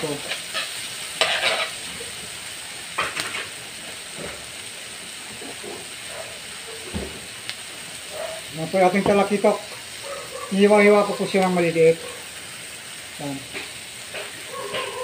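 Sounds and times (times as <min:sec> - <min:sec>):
vegetables sizzling in a wok: 0:00.0 - 0:15.0
metal spatula scraping a pan: 0:00.2 - 0:01.9, 0:14.2 - 0:15.0.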